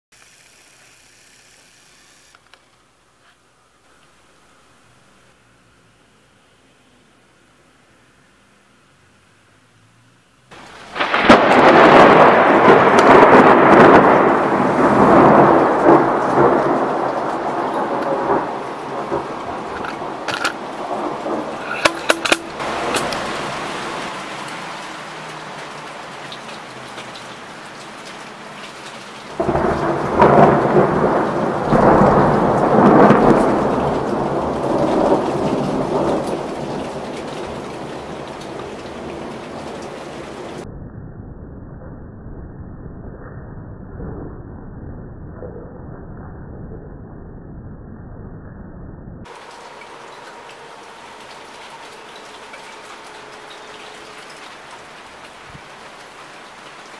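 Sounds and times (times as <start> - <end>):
heavy rain hiss: 0.1 - 40.6, 49.3 - 56.9
thunder rumbling: 10.5 - 56.9.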